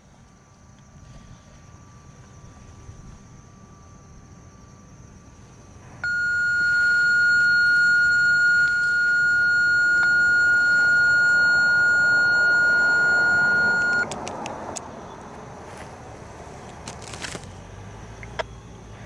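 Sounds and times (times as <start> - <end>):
high-pitched electronic beep: 6.0 - 14.1.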